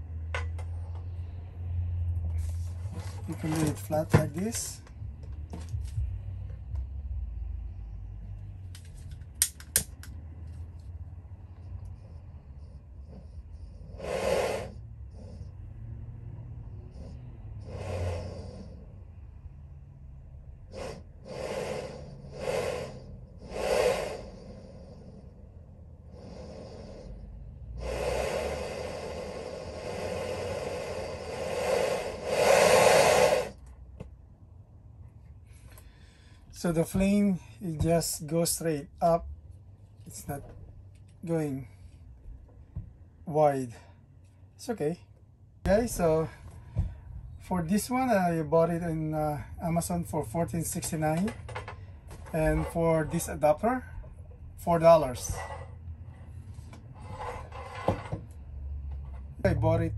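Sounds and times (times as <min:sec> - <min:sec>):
low steady rumble: 0:00.0 - 0:59.9
stove burner flame hissing: 0:20.8 - 0:24.6, 0:27.8 - 0:33.6.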